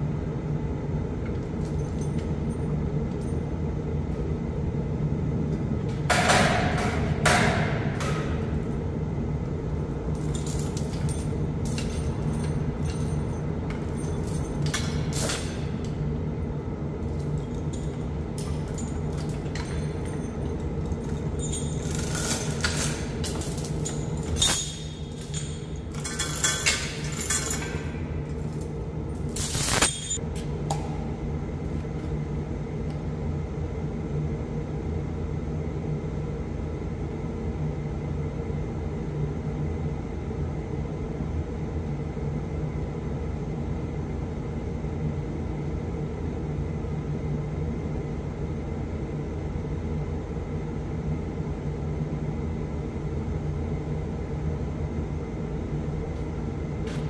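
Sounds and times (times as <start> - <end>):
sharp metallic clank: 29.4 - 30.2.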